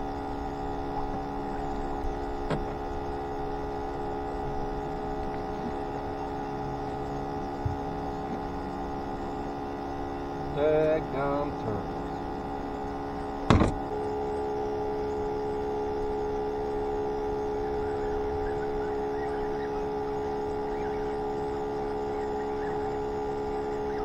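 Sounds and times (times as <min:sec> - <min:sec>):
aerator pump whining: 0:00.0 - 0:24.0
sharp thump: 0:13.5 - 0:13.8.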